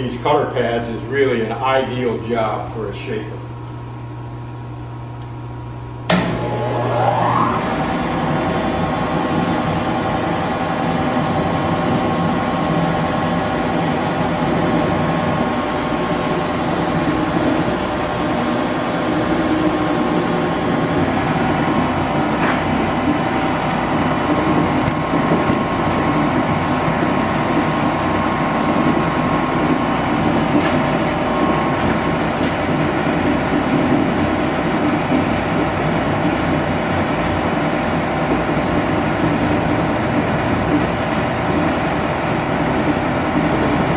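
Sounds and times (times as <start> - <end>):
metal shaper machine clatter and hum: 7.5 - 43.9.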